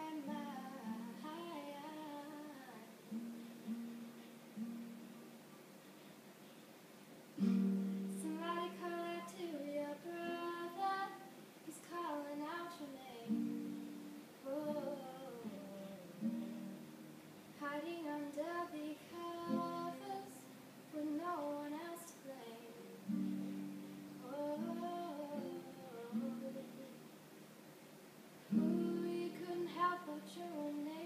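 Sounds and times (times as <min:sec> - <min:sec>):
girl singing: 0:00.0 - 0:03.2, 0:07.8 - 0:27.0, 0:28.5 - 0:31.0
acoustic guitar chords: 0:07.4 - 0:27.2, 0:28.5 - 0:31.0.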